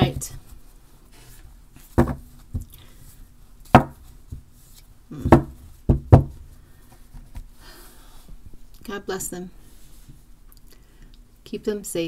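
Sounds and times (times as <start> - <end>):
card deck knocking on tabletop: 2.0 - 2.2.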